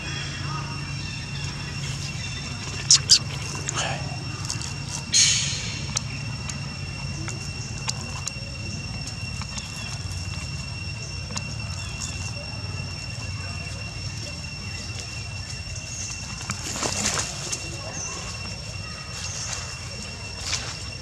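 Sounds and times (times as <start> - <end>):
low hum: 0.0 - 16.6
monkey biting coconut husk: 2.6 - 12.4.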